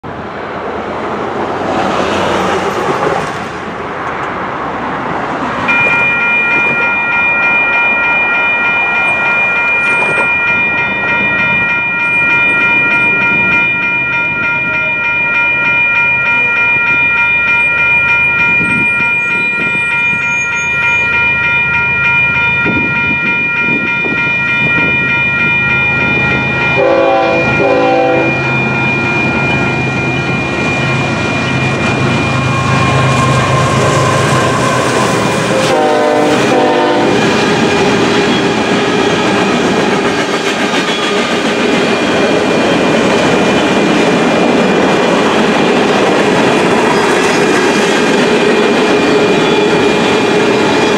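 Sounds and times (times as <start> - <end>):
diesel locomotives: 0.0 - 50.9
railroad crossing bells ringing: 5.2 - 50.9
train horn: 26.7 - 28.4, 32.5 - 37.3.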